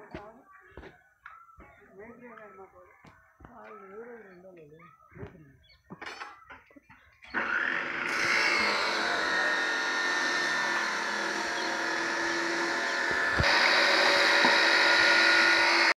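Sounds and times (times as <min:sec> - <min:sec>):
machine hissing and whining: 0:07.4 - 0:15.9.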